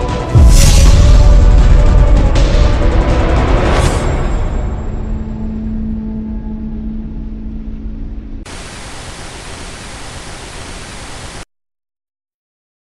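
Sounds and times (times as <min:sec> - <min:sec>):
dark soundtrack music: 0:00.0 - 0:08.5
tv static hiss: 0:08.5 - 0:11.5.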